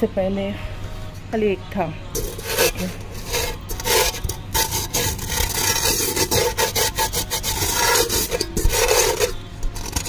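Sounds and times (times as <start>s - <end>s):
fingers scraping rice crust in pot: 2.2s - 10.0s.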